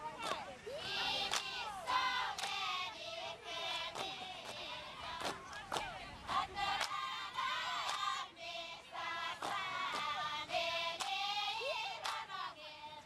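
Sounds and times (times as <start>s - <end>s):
women singing a chant: 0.0s - 13.0s
sharp hand claps: 1.3s - 1.5s, 2.4s - 2.6s, 7.8s - 8.1s, 9.4s - 10.1s, 12.0s - 12.2s.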